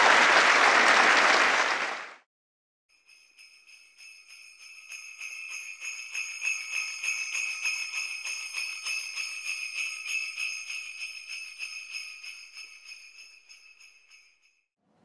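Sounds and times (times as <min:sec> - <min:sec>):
jingle bells shaken: 0:02.9 - 0:14.6.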